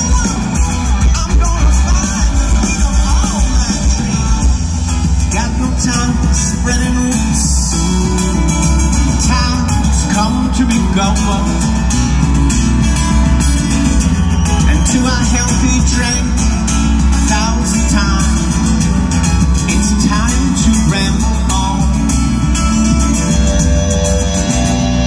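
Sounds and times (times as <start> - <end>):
man singing: 0.0 - 12.0, 14.6 - 22.5
drums: 0.0 - 25.0
electric guitar: 0.0 - 25.0.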